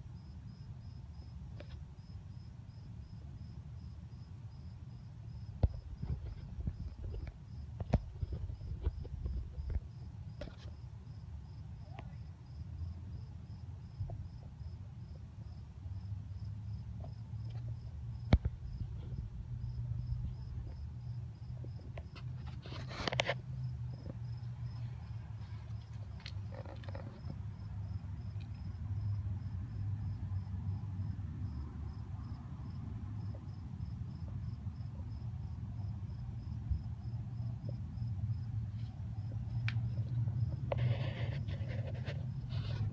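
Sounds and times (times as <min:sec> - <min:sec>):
cricket chirping: 0:00.0 - 0:42.9
steady low rumble: 0:05.0 - 0:10.4, 0:17.4 - 0:22.1.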